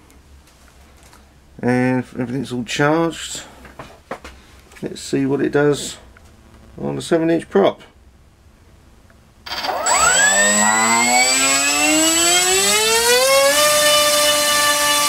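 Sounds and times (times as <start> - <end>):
electric motor high whine: 9.5 - 15.0.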